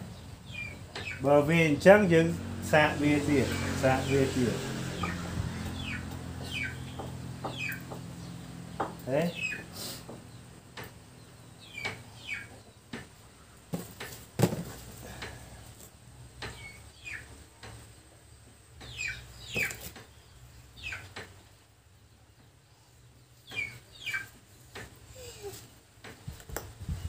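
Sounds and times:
bird chirping: 0:00.0 - 0:01.4, 0:05.0 - 0:13.7, 0:16.4 - 0:17.7, 0:18.4 - 0:21.2, 0:22.0 - 0:25.5.

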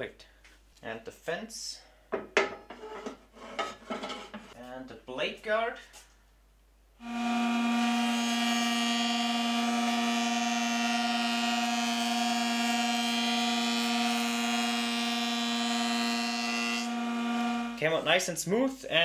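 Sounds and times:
jointer planer humming and whining: 0:07.0 - 0:17.8.

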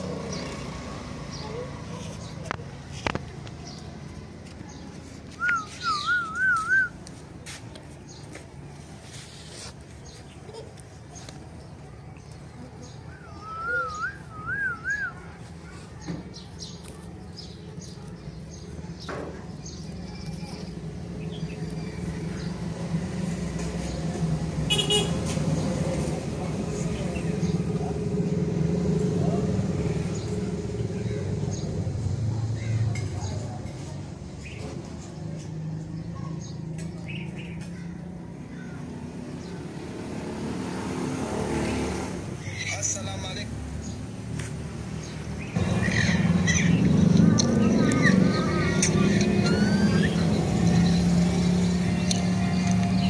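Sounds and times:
vehicle engine hum: 0:00.0 - 0:53.0
bird chirps: 0:05.4 - 0:06.9
wavering whistle: 0:13.3 - 0:15.2.

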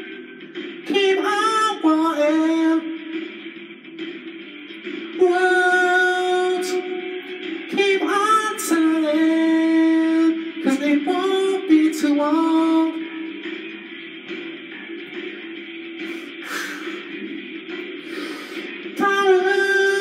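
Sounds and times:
backing track: 0:00.0 - 0:20.0
man singing long held notes: 0:00.9 - 0:03.0, 0:05.2 - 0:13.1, 0:19.0 - 0:20.0.

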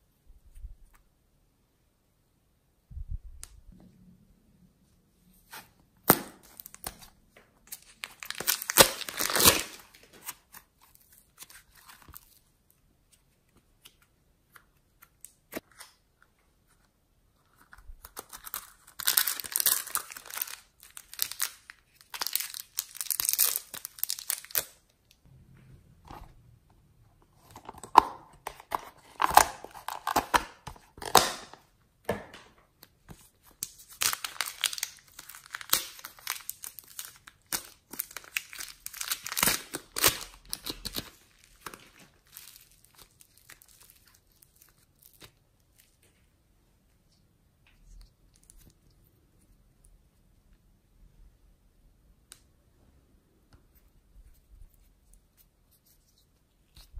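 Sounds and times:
plastic wrappers crinkling and tearing: 0:06.4 - 0:12.4, 0:17.5 - 0:24.9, 0:33.3 - 0:46.1.

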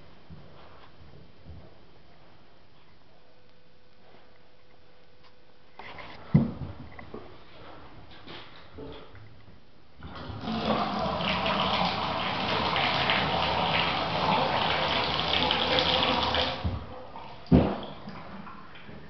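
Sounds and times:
thump: 0:06.3 - 0:06.8, 0:17.5 - 0:17.8
water running from faucet: 0:10.0 - 0:16.7.

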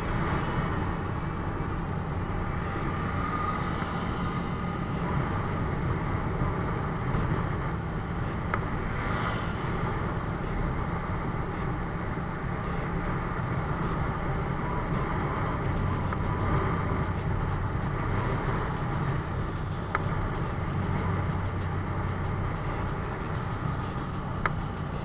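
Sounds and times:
motorcycle engine running: 0:00.0 - 0:08.3, 0:15.6 - 0:25.0
rush of riding noise: 0:00.0 - 0:25.0.

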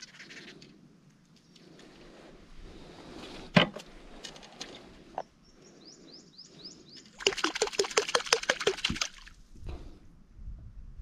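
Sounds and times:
bird chirping: 0:05.4 - 0:07.2
clattering and splashing: 0:07.2 - 0:09.3.

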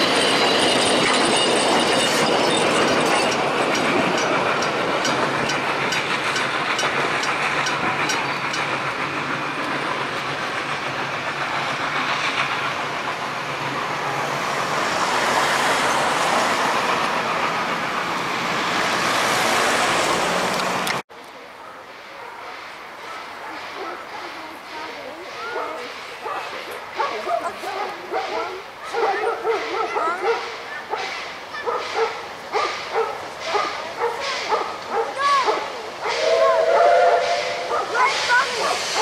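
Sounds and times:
train wheels squealing: 0:00.0 - 0:10.2
wheels clicking over rail joints: 0:00.0 - 0:13.8
train rolling rumble: 0:00.0 - 0:39.0.

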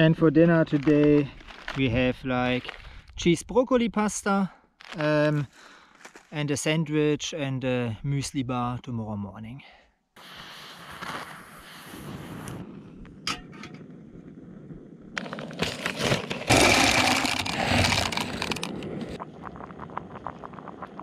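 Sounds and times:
plastic packet tearing and crinkling: 0:00.6 - 0:01.9, 0:15.2 - 0:19.1.

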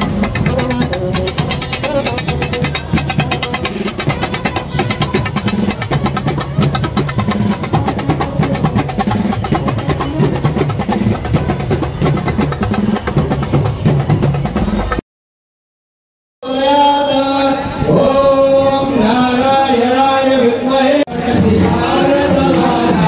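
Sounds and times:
loud procession drumming: 0:00.0 - 0:15.0, 0:21.1 - 0:23.0.

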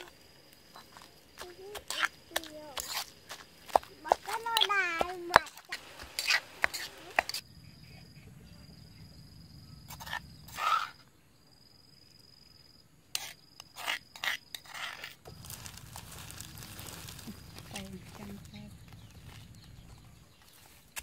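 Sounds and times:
spoon scraping stone mortar: 0:00.0 - 0:07.4, 0:09.8 - 0:11.0, 0:13.1 - 0:15.8.

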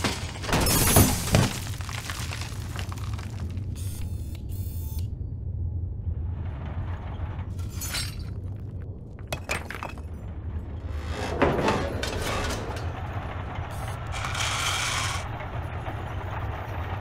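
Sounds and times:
stones clattering against metal bucket: 0:00.0 - 0:03.6
excavator machinery rumbling: 0:05.6 - 0:17.0.

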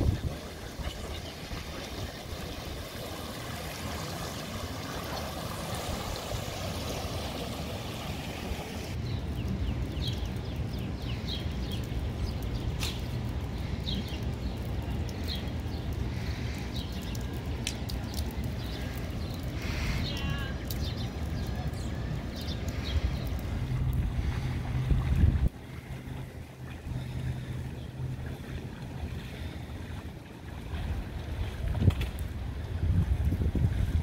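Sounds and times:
floodwater sloshing and trickling: 0:00.0 - 0:34.0
steady low rumble: 0:00.0 - 0:34.0
water lapping around car wheels: 0:00.0 - 0:34.0.

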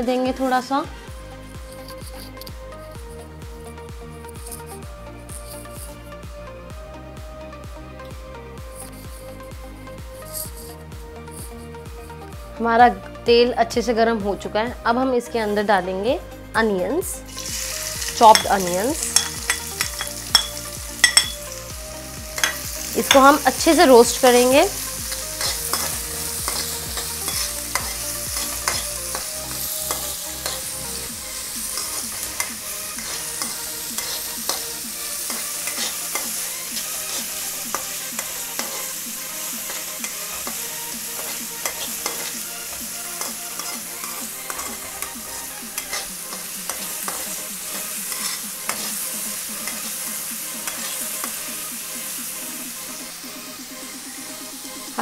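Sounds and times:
onions sizzling in hot oil: 0:16.9 - 0:55.0
metal spatula scraping a pan: 0:25.1 - 0:29.2, 0:31.7 - 0:34.6, 0:35.2 - 0:38.9, 0:43.2 - 0:49.9.

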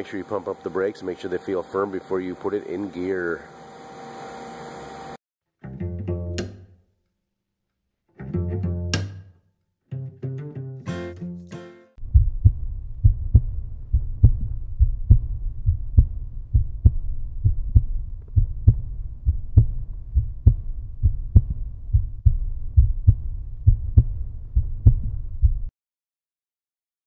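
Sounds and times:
deep thudding pulse: 0:12.0 - 0:25.7.

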